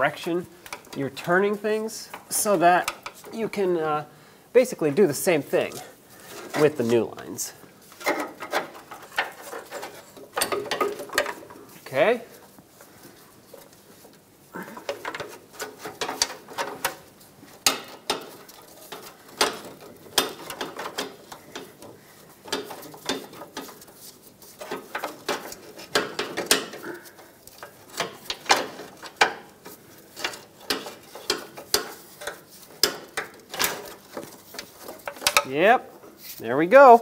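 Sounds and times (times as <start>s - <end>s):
metal pipes clanking and scraping: 5.7s - 11.8s, 14.6s - 35.6s.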